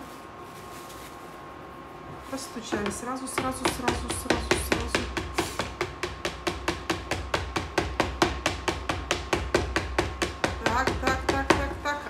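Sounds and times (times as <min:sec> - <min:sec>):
rapid wooden board knocks: 0:02.8 - 0:11.8.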